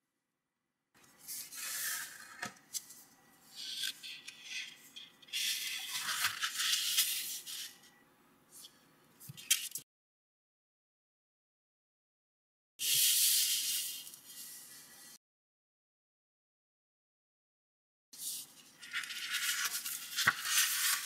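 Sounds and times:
paper rustling and folding: 1.1 - 7.8, 18.2 - 21.0.

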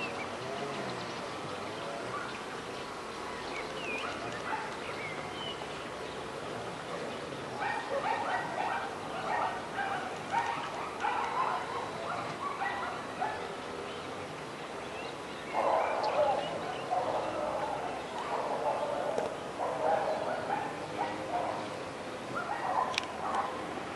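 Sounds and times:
dog barking: 4.0 - 4.7, 7.0 - 13.5, 15.6 - 21.7, 22.4 - 23.6.

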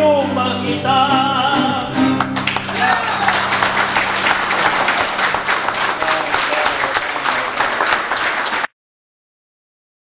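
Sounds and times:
audience applauding: 2.1 - 8.7.

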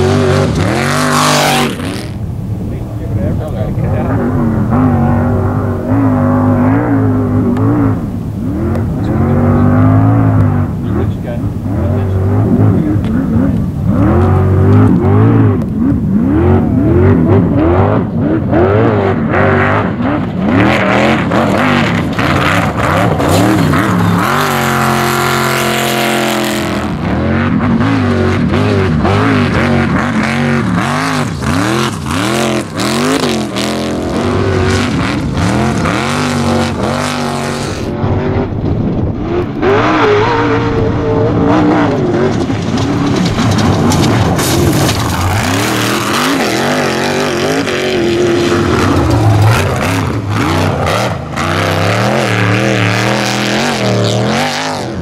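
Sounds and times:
buggy engine revving: 0.0 - 55.0
knocks and clatter: 41.7 - 50.7.

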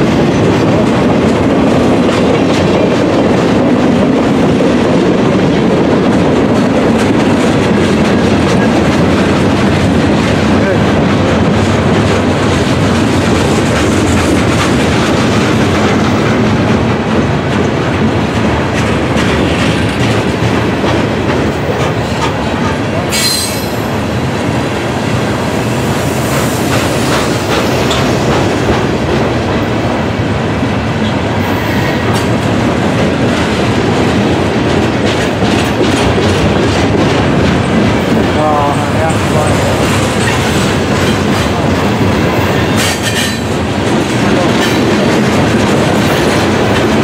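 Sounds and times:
freight train wheels rumbling: 0.0 - 47.0
wheels clacking over rail joints: 0.0 - 47.0
high wheel squeal: 23.1 - 23.8.

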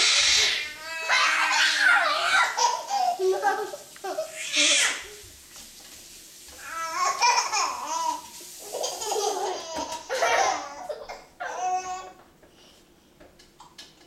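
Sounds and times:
baby laughing and squealing: 0.0 - 5.1, 6.7 - 12.1.

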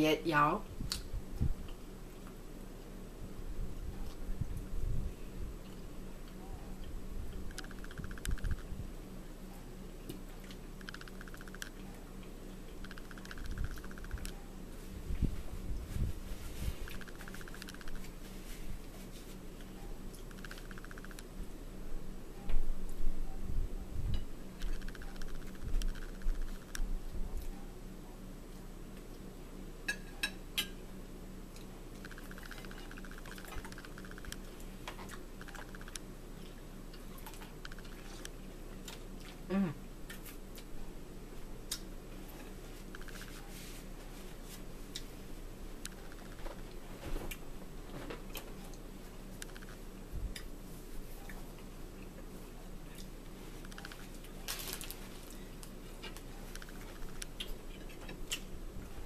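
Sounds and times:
low steady hum: 0.0 - 59.0
chewing clicks: 5.6 - 8.7, 10.1 - 14.4, 16.8 - 18.1, 20.1 - 21.3, 24.6 - 27.6, 31.5 - 39.4, 42.9 - 43.4, 45.8 - 46.4, 49.4 - 50.5, 53.0 - 54.3, 55.6 - 58.5
cutlery clicking on a plate: 29.9 - 30.8.

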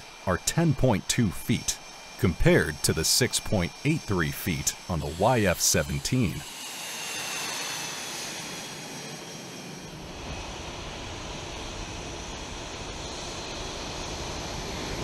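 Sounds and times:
deep jet engine rumble: 0.0 - 15.0
jet engine turbine whine: 0.0 - 15.0.

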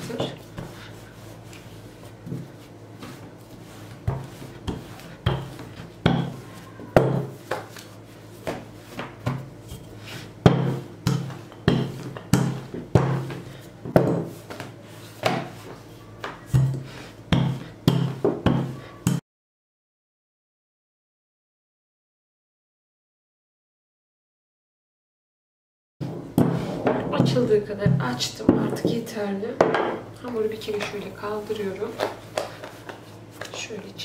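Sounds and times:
rolling pin thuds on dough: 2.2 - 7.8, 8.4 - 9.5, 10.4 - 19.2.

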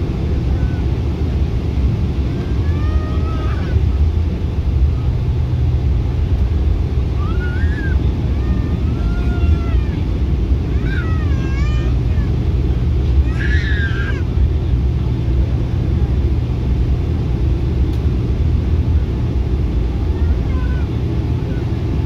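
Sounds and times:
aircraft cabin rumble: 0.0 - 22.0
faint passenger voices: 0.0 - 22.0.

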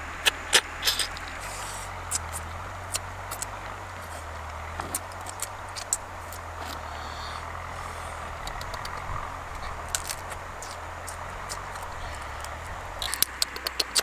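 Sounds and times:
low background rumble: 0.0 - 14.0
crab shells cracking: 4.2 - 6.8, 8.3 - 14.0.

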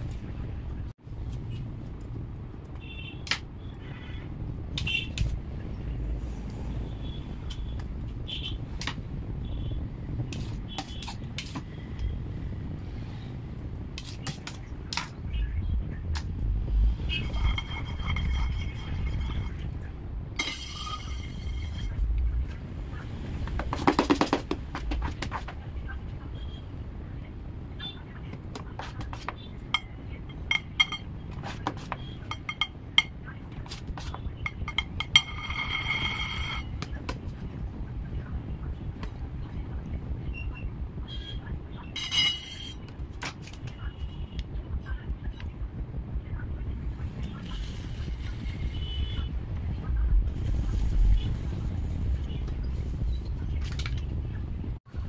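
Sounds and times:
low background rumble: 14.7 - 23.7, 43.7 - 55.0.

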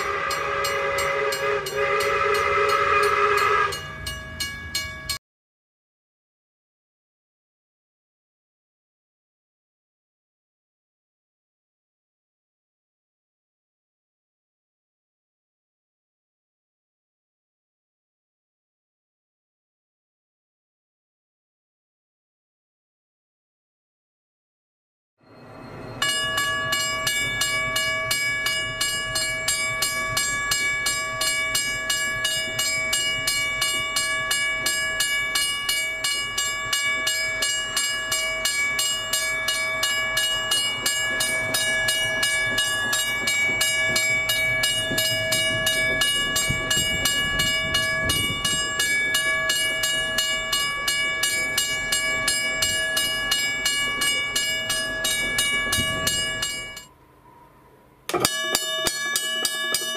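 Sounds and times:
level crossing bell ringing: 0.0 - 5.2, 25.5 - 56.9, 58.1 - 59.9.

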